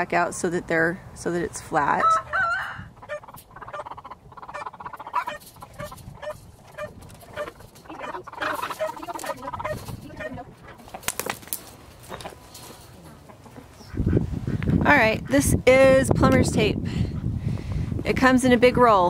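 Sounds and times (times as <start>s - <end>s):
chickens clucking: 1.7s - 17.3s
wire grid panels clattering: 3.1s - 13.1s.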